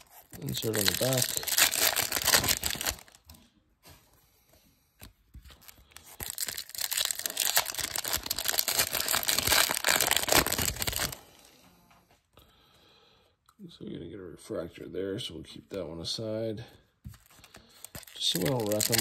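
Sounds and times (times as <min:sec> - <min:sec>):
foil wrapper crinkling and tearing: 0:00.0 - 0:03.3, 0:05.5 - 0:11.3, 0:17.1 - 0:19.0.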